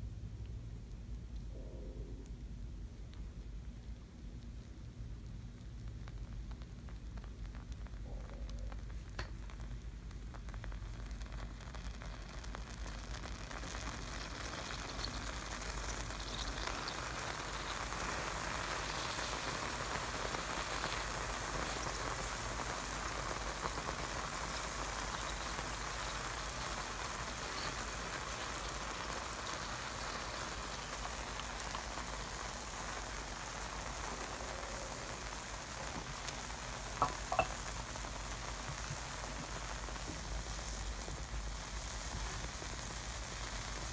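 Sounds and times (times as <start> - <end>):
acid sizzling on food: 3.1 - 43.9.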